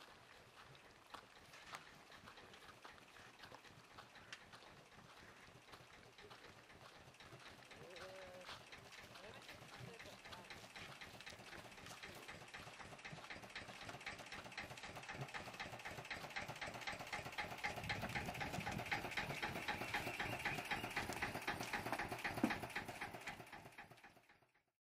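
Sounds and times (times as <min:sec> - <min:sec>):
boat diesel engine idling: 0:00.3 - 0:24.6.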